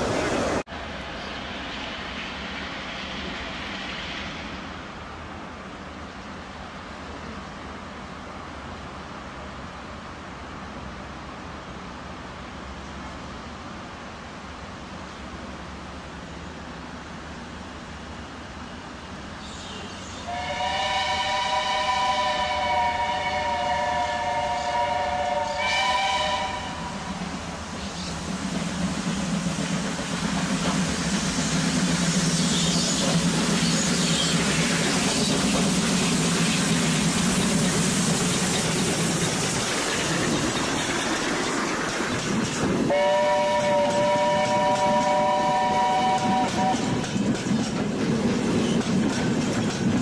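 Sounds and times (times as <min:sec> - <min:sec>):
train passing rumble: 0:00.0 - 0:50.0
steam locomotive whistle: 0:20.3 - 0:27.2, 0:42.9 - 0:47.0.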